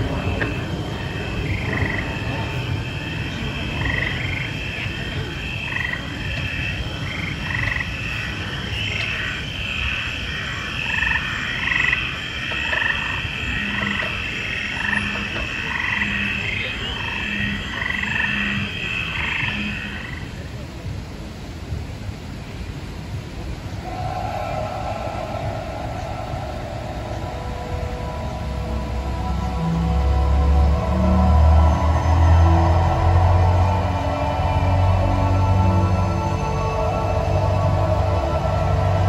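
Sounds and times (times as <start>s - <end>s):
frogs croaking: 0.0s - 20.6s, 23.7s - 39.0s
low steady rumble: 0.0s - 39.0s.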